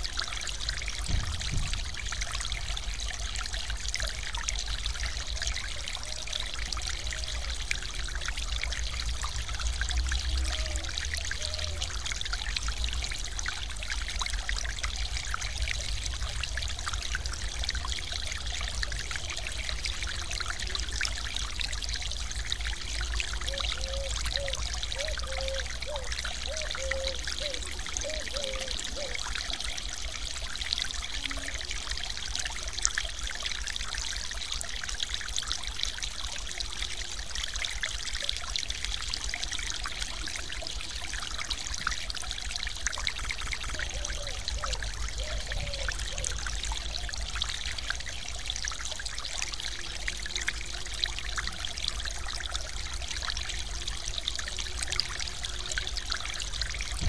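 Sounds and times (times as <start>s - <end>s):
water rushing over a weir: 0.0s - 57.0s.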